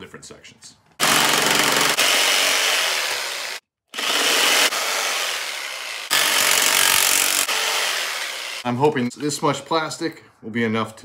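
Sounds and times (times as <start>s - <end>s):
power saw cutting plastic: 1.0s - 8.7s.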